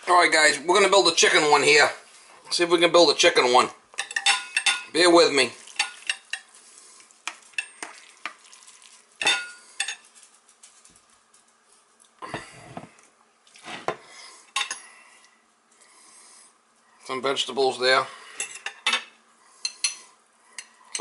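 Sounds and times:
metal utensil clinking on bowl: 4.0 - 4.9, 9.2 - 10.0, 20.6 - 21.0
food scraping and shuffling: 5.2 - 14.2.

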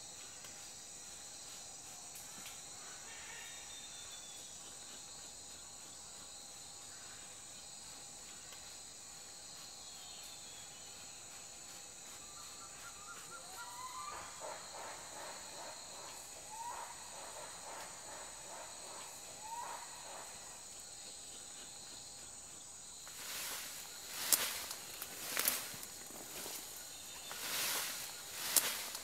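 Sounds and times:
whistled bird calls: 12.4 - 15.3
rustling: 23.0 - 29.0.

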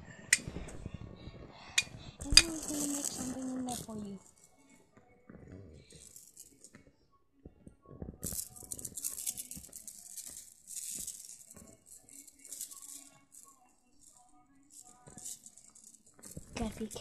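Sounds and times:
handheld rattle shaking: 2.2 - 4.2, 5.9 - 6.7, 8.2 - 17.0.

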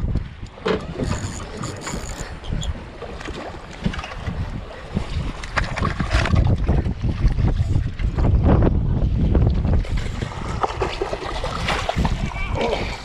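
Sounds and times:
water lapping against boat: 0.0 - 13.0
wind buffeting microphone: 0.0 - 13.0.

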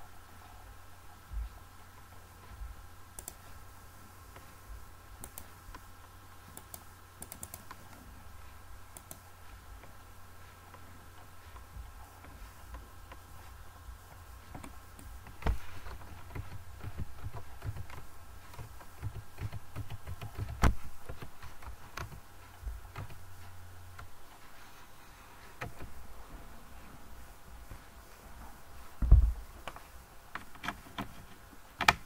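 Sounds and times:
low steady hum: 0.0 - 32.0
computer keyboard and mouse clicks: 3.2 - 3.5, 5.2 - 5.8, 6.5 - 8.0, 9.0 - 9.2, 14.5 - 22.2, 22.9 - 23.2, 29.6 - 32.0.

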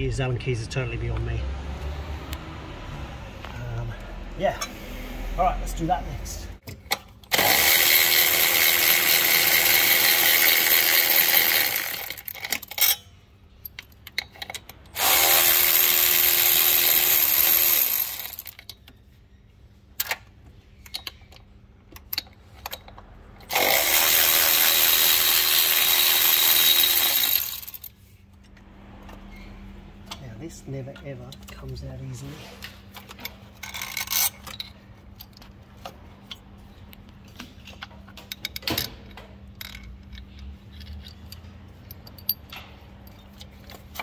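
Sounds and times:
cordless power tool spinning: 7.3 - 12.3, 15.0 - 18.6, 23.5 - 27.9.

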